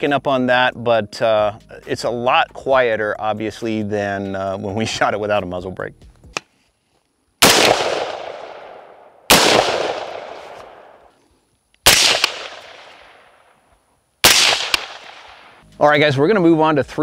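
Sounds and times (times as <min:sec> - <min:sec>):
pistol shots ringing out: 0:07.4 - 0:11.0, 0:11.8 - 0:13.3, 0:14.2 - 0:15.6.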